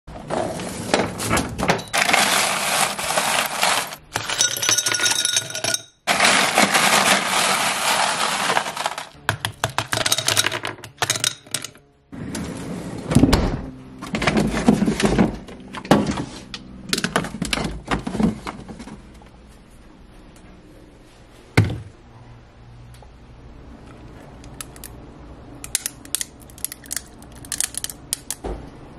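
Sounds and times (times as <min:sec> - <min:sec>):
ice cubes clinking in a glass: 0:01.9 - 0:11.6
ice cubes rattling in a bin: 0:01.9 - 0:11.7
ice cubes spilling onto counter: 0:02.0 - 0:09.2.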